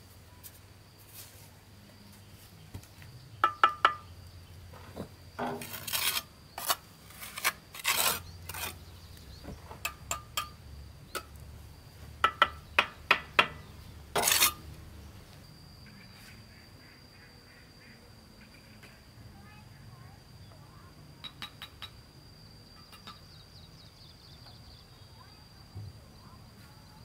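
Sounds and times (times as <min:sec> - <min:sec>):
trowel tapping brick: 0:03.4 - 0:04.0, 0:12.2 - 0:13.6
trowel scraping mortar: 0:05.4 - 0:09.0, 0:14.2 - 0:14.6.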